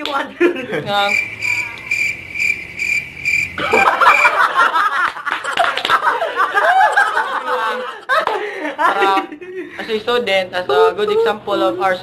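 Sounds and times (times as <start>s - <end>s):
young men laughing loudly: 0.4s - 1.1s, 3.6s - 9.8s
cricket chirping: 0.9s - 4.5s.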